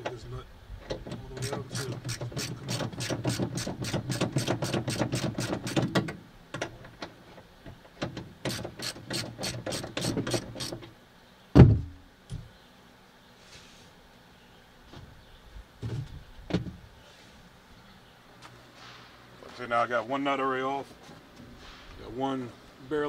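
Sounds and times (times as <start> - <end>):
ratchet wrench clicking: 8.5 - 10.7
loud thump: 11.6 - 12.0.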